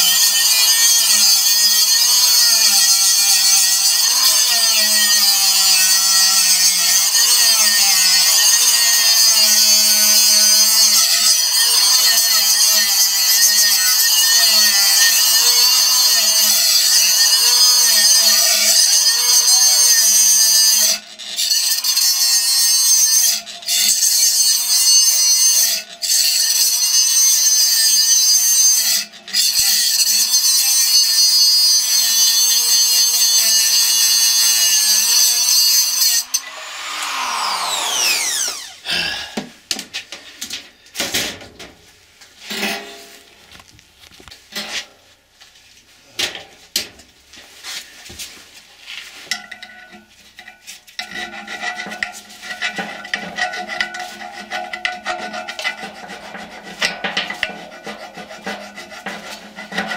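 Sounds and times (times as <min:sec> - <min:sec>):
cutoff tool grinding steel: 0:00.1 - 0:24.6, 0:31.2 - 0:39.2
motor winding down: 0:34.9 - 0:38.9
rubbing strokes on metal: 0:51.2 - 0:59.9.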